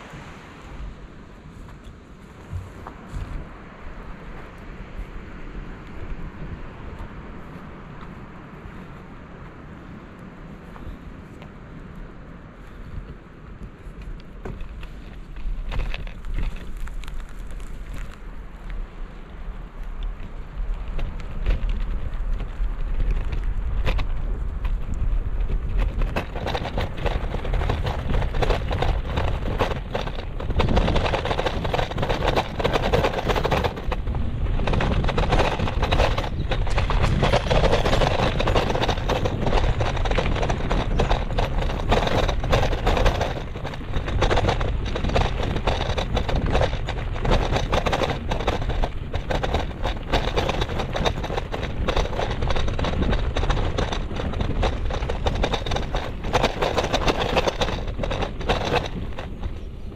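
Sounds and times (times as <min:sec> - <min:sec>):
bicycle knocks and rattles: 0:00.0 - 0:09.0, 0:12.6 - 0:59.9
wind buffeting microphone: 0:00.0 - 0:59.9.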